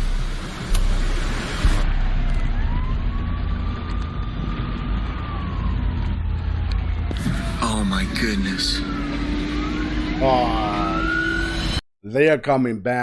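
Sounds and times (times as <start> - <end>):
siren wailing: 1.6 - 11.8.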